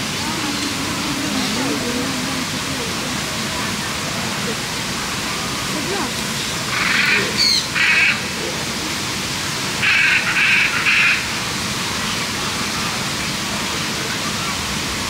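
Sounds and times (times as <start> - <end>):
macaw squawking: 6.7 - 8.2, 9.8 - 11.2.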